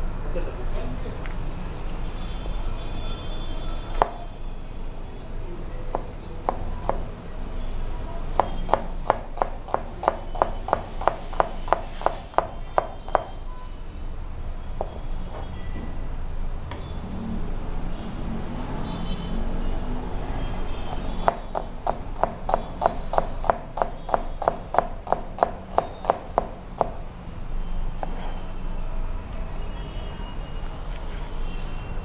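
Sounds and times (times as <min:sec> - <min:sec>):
knife chopping on plastic board: 0:08.3 - 0:13.3, 0:21.0 - 0:27.0.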